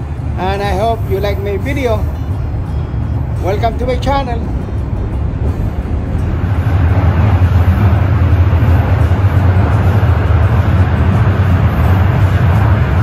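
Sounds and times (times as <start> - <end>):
rushing noise: 0.0 - 13.0
subway train rumble: 0.0 - 13.0.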